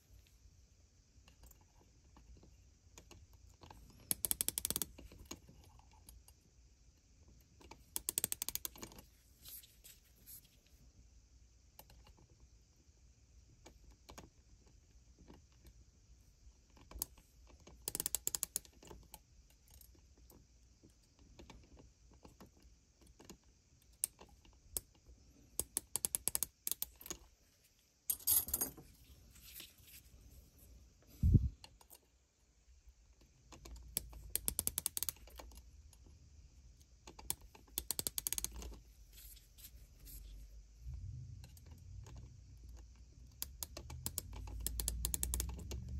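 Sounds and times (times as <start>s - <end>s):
small metallic clicks: 1.2s - 6.4s, 7.6s - 9.0s, 16.7s - 27.3s, 33.2s - 36.1s, 36.8s - 38.9s, 41.4s - 45.9s.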